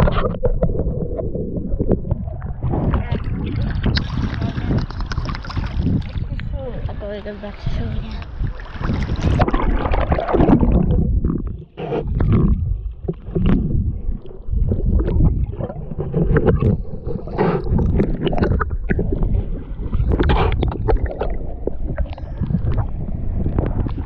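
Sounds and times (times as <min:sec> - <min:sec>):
muffled water sloshing and splashing: 0:00.0 - 0:24.0.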